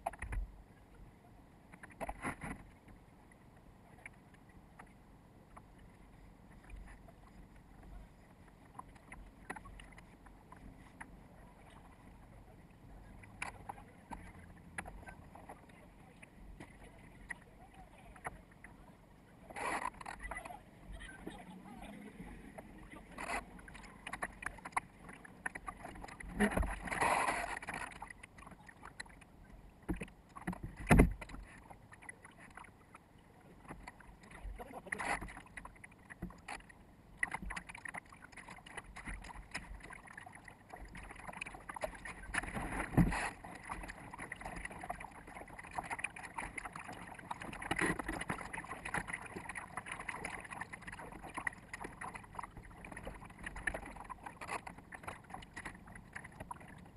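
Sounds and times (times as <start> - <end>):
water splashing against boat bow: 1.6 - 56.9
knocks against hull: 29.8 - 31.5.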